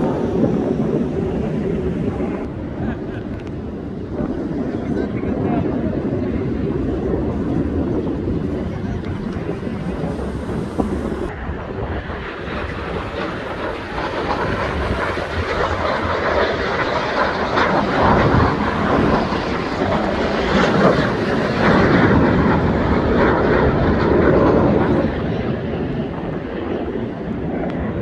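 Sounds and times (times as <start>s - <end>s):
jets passing over: 0.0s - 28.0s.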